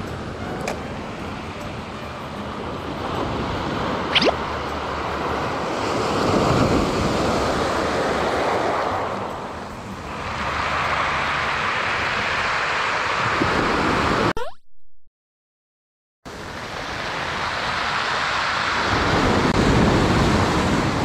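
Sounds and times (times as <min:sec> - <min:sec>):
surf breaking on beach: 0:10.1 - 0:14.3, 0:16.3 - 0:21.0
wind on microphone: 0:13.1 - 0:14.3, 0:16.5 - 0:21.0.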